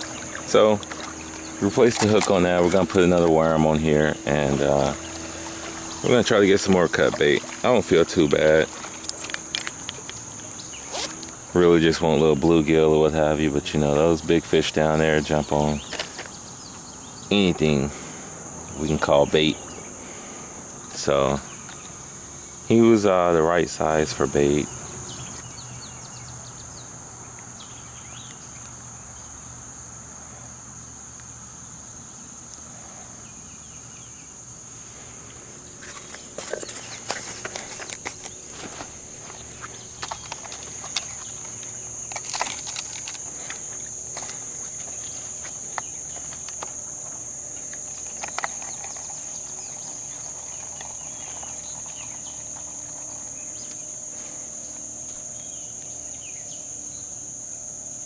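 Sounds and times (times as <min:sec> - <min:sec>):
fishing gear clicks and rustles: 0:00.0 - 0:13.1, 0:35.2 - 0:56.0
high-pitched insect drone: 0:00.0 - 0:58.0.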